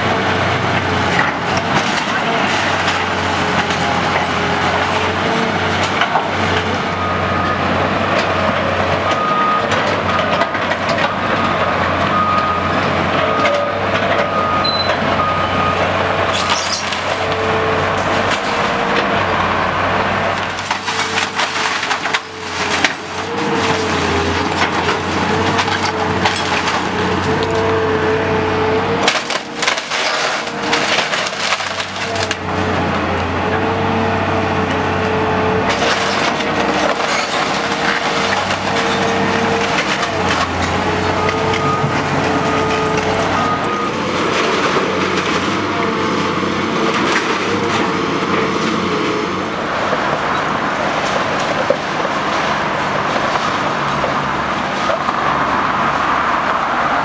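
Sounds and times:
excavator engine under load: 0.0s - 57.0s
wood cracking and splintering: 0.3s - 7.0s, 16.2s - 55.8s
short beeps: 14.3s - 15.8s
debris crashing down: 20.3s - 27.6s, 29.0s - 32.5s, 35.6s - 45.7s.

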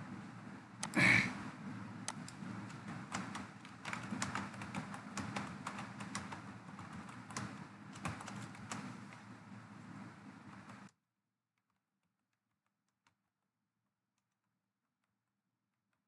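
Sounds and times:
low background hum: 0.0s - 10.9s
keyboard key clicks: 2.1s - 9.3s.

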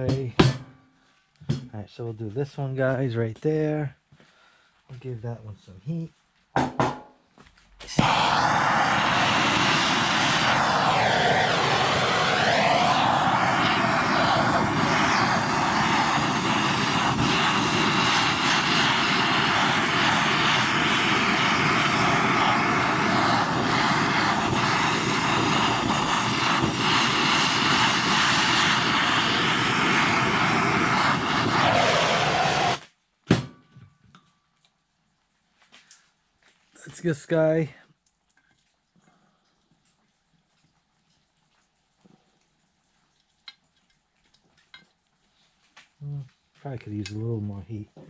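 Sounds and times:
gas torch hissing: 7.8s - 32.9s.

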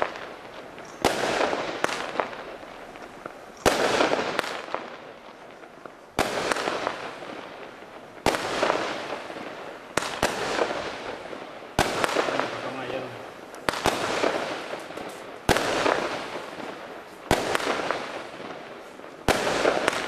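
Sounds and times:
firework cake bangs: 8.2s - 18.6s, 19.2s - 20.0s.

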